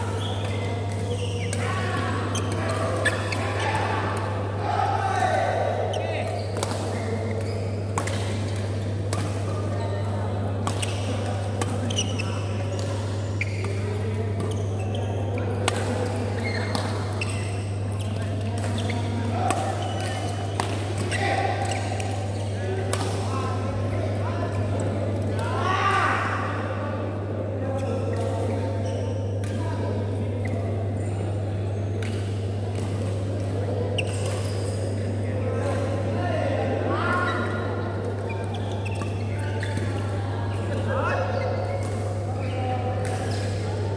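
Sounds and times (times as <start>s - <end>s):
reverberant background voices: 0.0s - 43.9s
shoe squeaks on court: 0.1s - 1.7s, 2.3s - 3.8s, 11.8s - 13.9s, 14.5s - 15.5s, 16.3s - 20.5s, 34.0s - 35.0s, 38.3s - 40.0s
rackets hitting shuttlecock: 6.2s - 14.6s, 15.6s - 23.3s.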